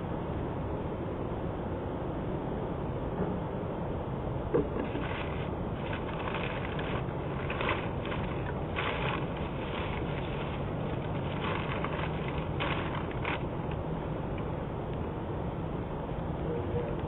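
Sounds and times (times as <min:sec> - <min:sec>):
rustling of items: 0:04.6 - 0:14.5
steady rushing hiss: 0:04.7 - 0:15.8.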